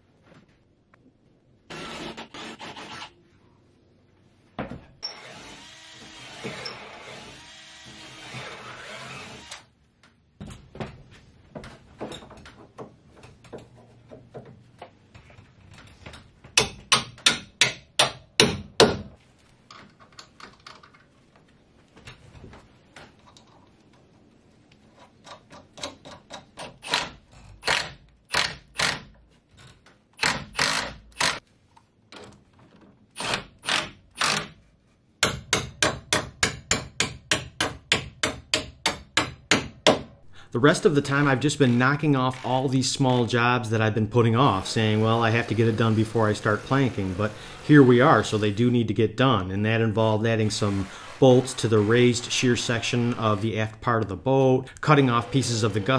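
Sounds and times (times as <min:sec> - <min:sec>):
hammer striking bolts into wood: 0:16.5 - 0:19.1, 0:35.2 - 0:40.2.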